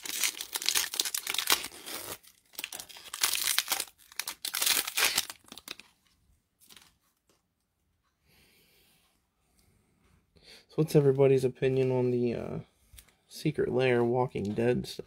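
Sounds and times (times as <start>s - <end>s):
foil wrapper crinkling and tearing: 0.0s - 6.0s, 6.6s - 7.0s.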